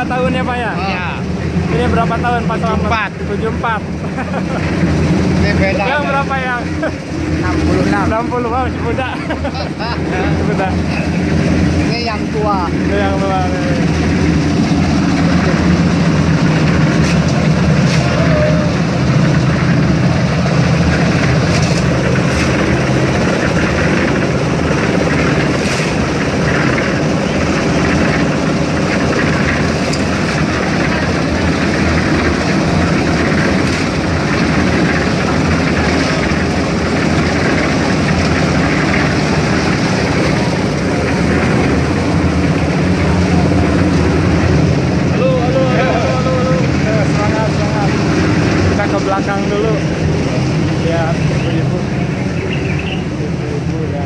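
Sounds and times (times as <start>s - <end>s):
concrete mixer engine humming: 0.0s - 54.0s
shovel scraping wet concrete: 21.3s - 22.6s, 25.6s - 26.1s.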